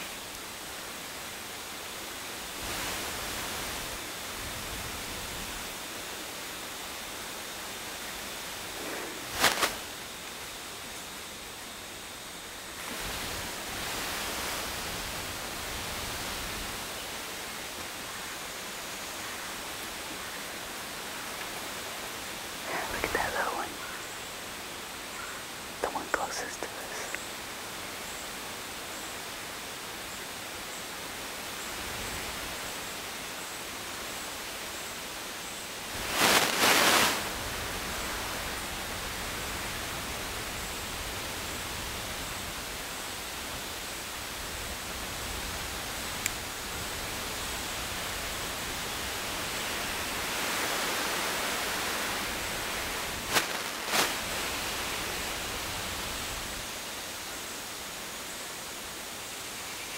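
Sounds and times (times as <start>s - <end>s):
outdoor background hiss: 0.0s - 59.9s
faint rustling: 8.7s - 9.9s, 36.0s - 37.4s, 53.2s - 54.8s.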